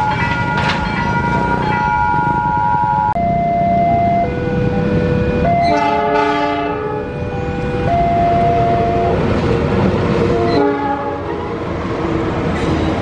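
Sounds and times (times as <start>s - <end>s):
train rumbling on rails: 0.0s - 13.0s
train horn blasts: 4.8s - 9.2s, 10.3s - 11.3s.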